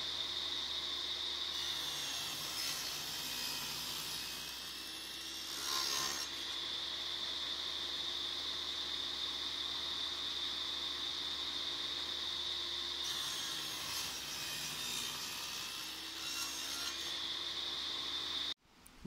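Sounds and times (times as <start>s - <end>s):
saw blade cutting wood: 0.0s - 6.8s, 13.0s - 18.2s
table saw whining: 0.0s - 18.6s.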